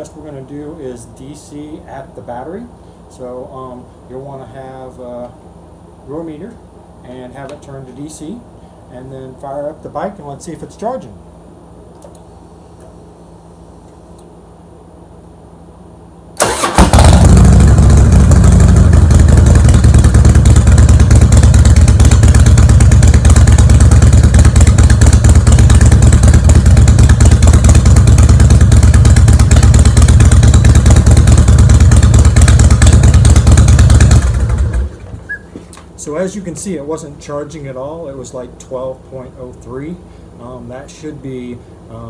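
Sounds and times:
motorcycle engine running: 16.4s - 35.3s.

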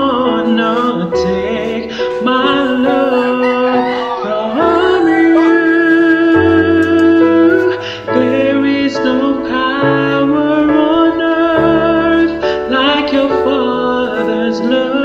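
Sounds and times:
person singing long wavering notes: 0.0s - 10.6s
keyboard and bass accompaniment: 0.0s - 15.0s.

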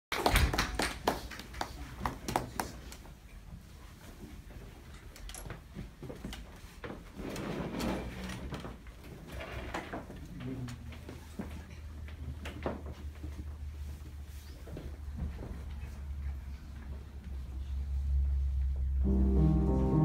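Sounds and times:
piano bench creaking and scraping: 7.1s - 8.7s.

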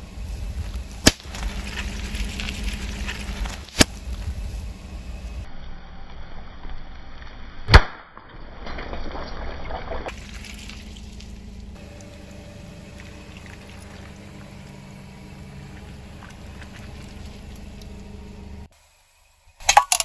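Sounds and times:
low steady hum: 0.0s - 20.0s
water beads squishing: 1.1s - 3.9s, 9.1s - 12.1s.

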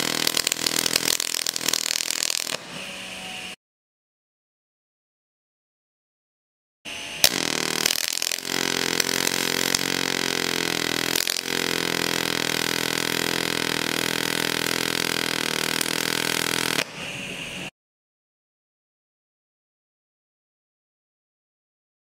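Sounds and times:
welding arc buzzing: 0.0s - 3.6s, 6.9s - 17.7s.

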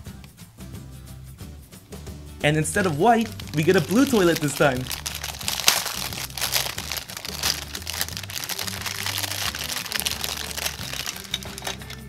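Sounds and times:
background music with low beat: 0.0s - 12.0s
plastic wrap crinkling: 2.8s - 12.0s.

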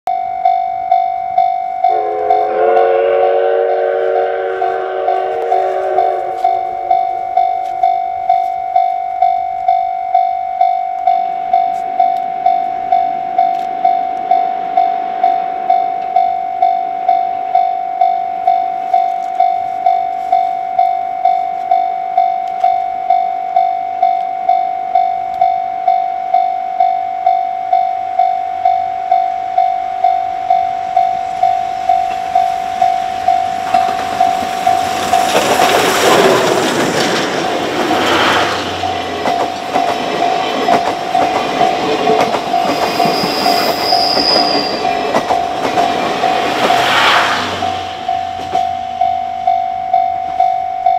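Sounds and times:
level-crossing bell ringing: 0.1s - 50.9s
passenger coaches rolling past: 1.8s - 21.1s, 29.4s - 50.5s.

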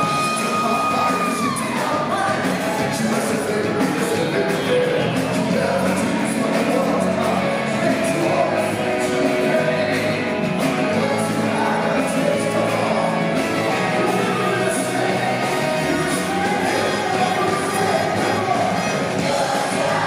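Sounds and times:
live pop-rock band: 0.0s - 20.0s
man singing into microphone: 0.0s - 20.0s
drum beat: 11.7s - 20.0s.

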